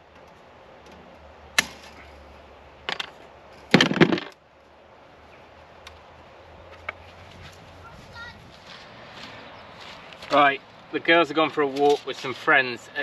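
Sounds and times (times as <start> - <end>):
fencing wire rattling: 2.9 - 4.4.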